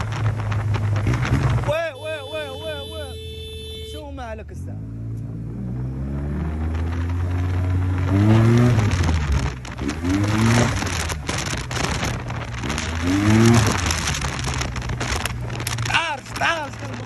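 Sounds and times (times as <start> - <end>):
wind buffeting microphone: 0.0 - 1.8, 6.6 - 17.0.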